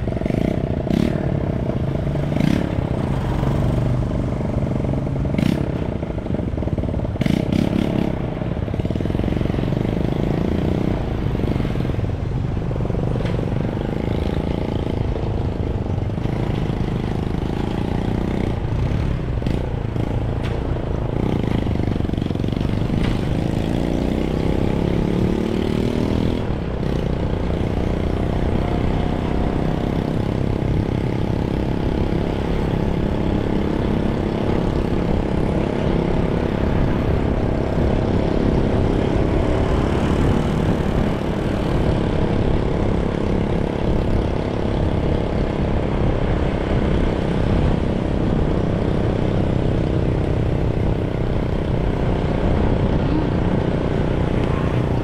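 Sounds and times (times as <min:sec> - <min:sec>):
vehicle engine and road noise: 0:00.0 - 0:55.0.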